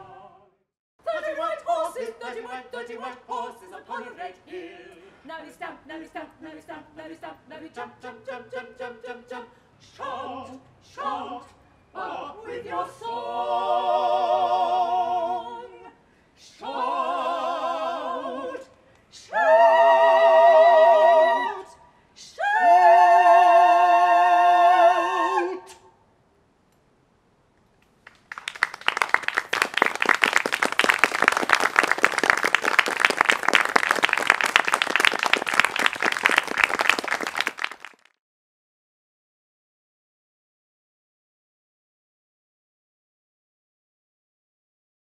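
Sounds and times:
vocal quartet singing chords: 0.0s - 26.0s
audience applauding: 28.0s - 38.2s.

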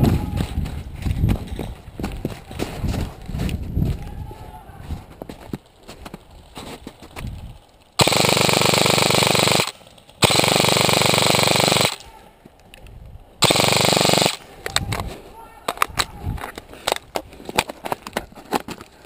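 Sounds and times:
airsoft rifle full-auto bursts: 8.0s - 12.0s, 13.4s - 14.4s.

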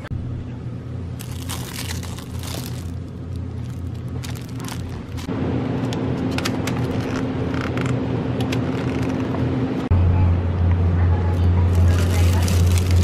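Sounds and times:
low store hum: 0.0s - 13.0s
plastic packaging rustling: 1.2s - 5.3s, 11.7s - 13.0s.

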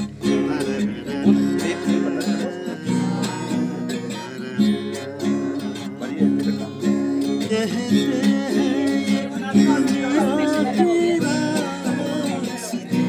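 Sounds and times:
acoustic guitar strumming: 0.0s - 13.0s
person singing: 0.0s - 13.0s.

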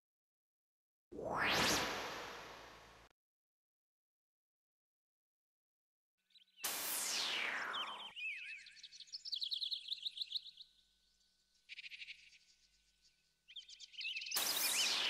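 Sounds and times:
loud falling whoosh: 1.2s - 3.1s.

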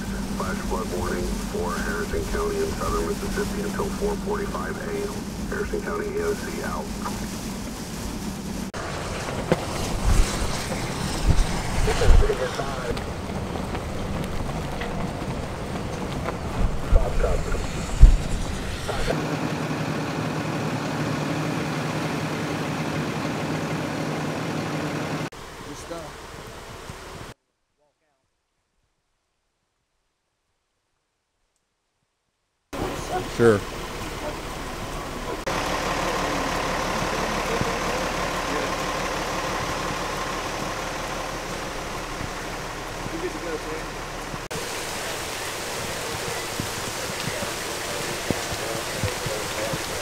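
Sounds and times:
heavy rain hissing: 0.0s - 19.5s, 32.8s - 50.0s
vehicle engine idling: 0.0s - 27.4s, 32.8s - 50.0s.

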